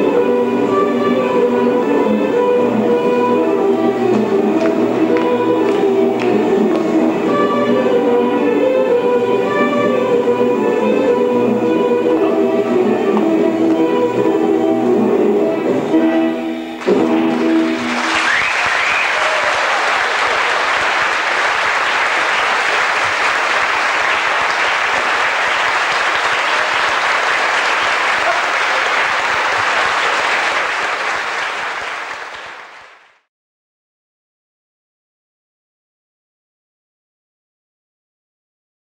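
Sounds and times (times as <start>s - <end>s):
plucked-string dance music: 16.8s - 18.5s
audience applause: 16.8s - 33.2s
short rising whistle: 18.0s - 19.5s.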